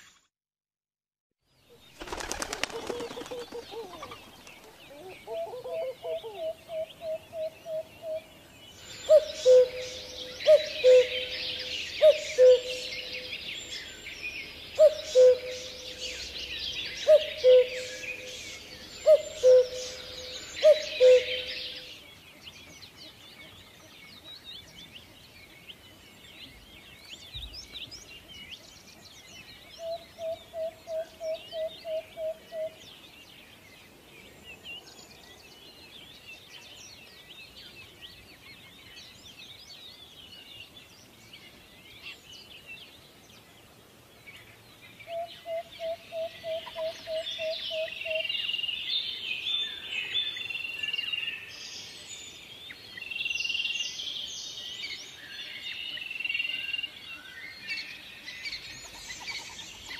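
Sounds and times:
chorus of chirping birds: 0:01.5 - 0:59.9
bird hooting: 0:02.5 - 0:08.2, 0:09.1 - 0:13.2, 0:14.8 - 0:16.2, 0:17.0 - 0:18.3, 0:19.0 - 0:21.6.

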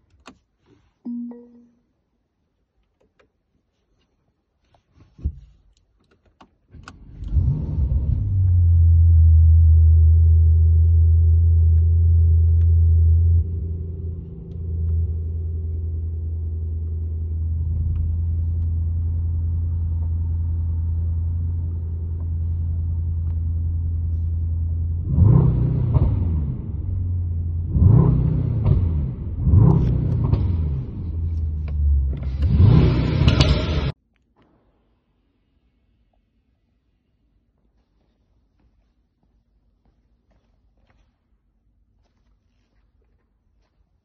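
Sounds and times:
car engine starting and idling: 0:06.7 - 0:34.0.

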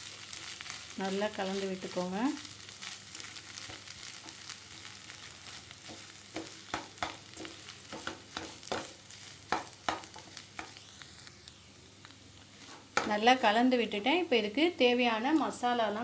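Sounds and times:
faint oil sizzle: 0:00.0 - 0:16.0
spatula scraping a pan: 0:02.8 - 0:10.8, 0:12.5 - 0:13.2
spatula tapping a pan: 0:05.8 - 0:10.8.

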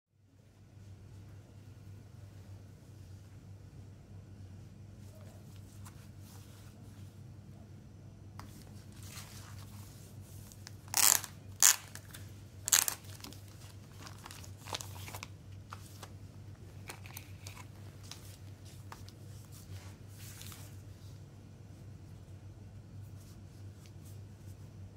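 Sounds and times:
plastic wrap crinkling: 0:10.5 - 0:16.1
sharp plastic crackles: 0:10.6 - 0:16.1.

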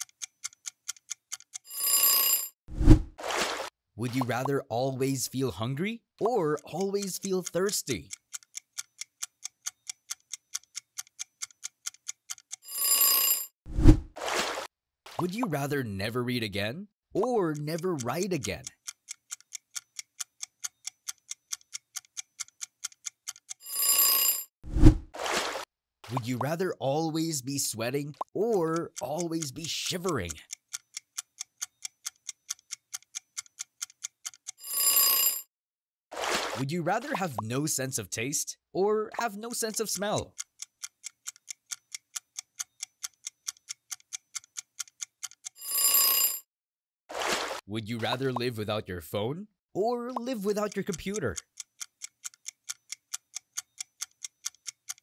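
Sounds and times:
clock ticking fast: 0:00.0 - 0:01.7, 0:05.2 - 0:12.7, 0:17.2 - 0:23.7, 0:26.1 - 0:34.6, 0:39.2 - 0:45.6, 0:49.8 - 0:55.0.

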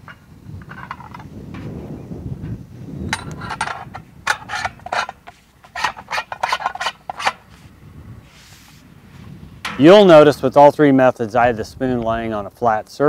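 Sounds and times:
metallic clicks and scrapes: 0:00.0 - 0:01.8, 0:02.4 - 0:07.7.

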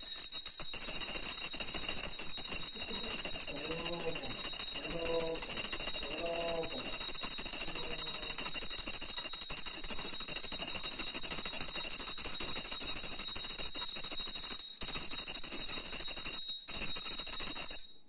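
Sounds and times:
hand bell ringing: 0:00.0 - 0:18.0
person speaking: 0:02.8 - 0:07.0, 0:07.7 - 0:08.3.

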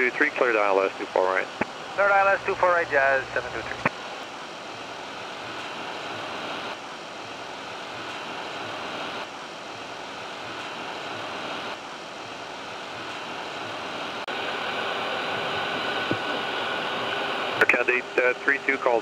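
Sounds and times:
in-flight airflow and engine noise: 0:00.0 - 0:19.0.

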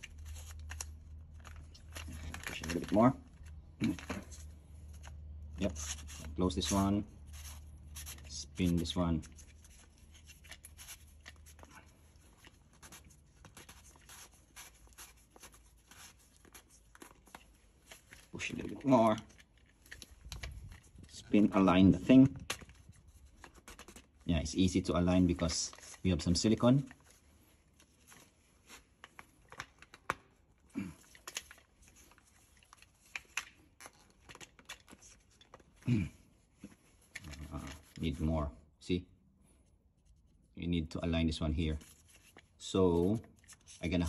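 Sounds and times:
faint plastic scratching: 0:36.5 - 0:38.3.

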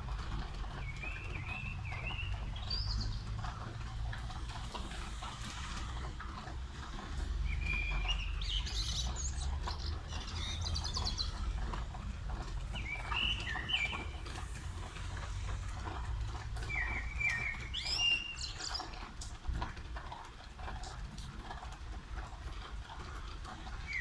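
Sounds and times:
rain pattering: 0:00.0 - 0:24.0
songbird chirping: 0:00.8 - 0:03.8, 0:07.0 - 0:19.0.

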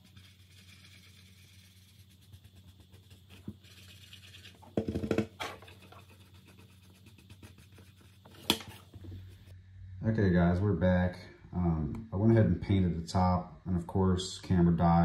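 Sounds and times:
marker tip scratching on plastic: 0:00.0 - 0:08.9.

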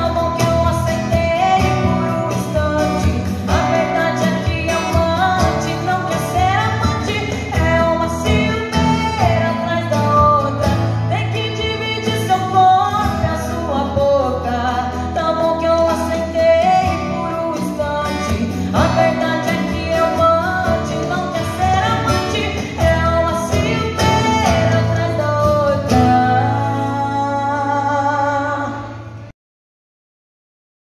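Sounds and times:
strummed acoustic guitar: 0:00.0 - 0:29.3
woman singing into microphone: 0:00.0 - 0:29.3.

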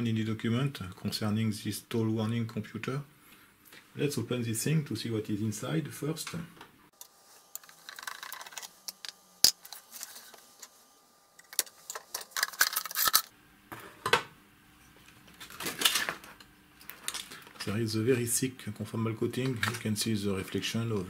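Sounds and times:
small metal parts clicking: 0:07.6 - 0:10.2, 0:11.4 - 0:13.3.

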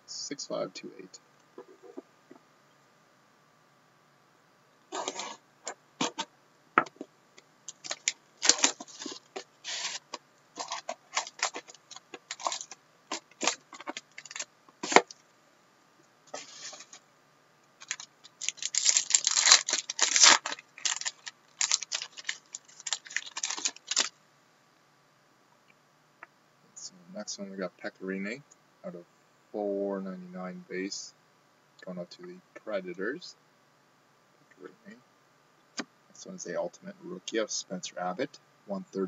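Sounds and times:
plastic wrap crinkling: 0:04.9 - 0:05.4, 0:07.7 - 0:15.1, 0:17.8 - 0:24.1.

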